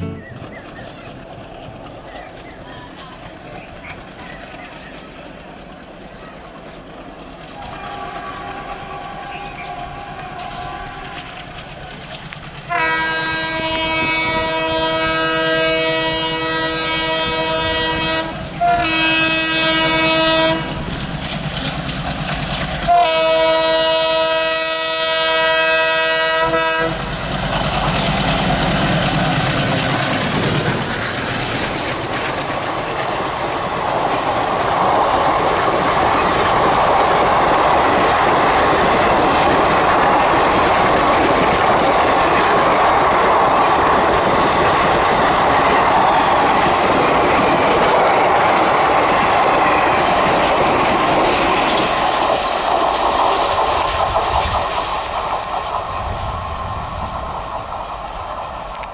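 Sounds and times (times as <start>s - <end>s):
train passing rumble: 0.0s - 58.9s
train wheel clatter: 0.0s - 58.9s
locomotive air horn blasts: 7.8s - 11.2s, 12.7s - 20.8s, 22.8s - 27.1s.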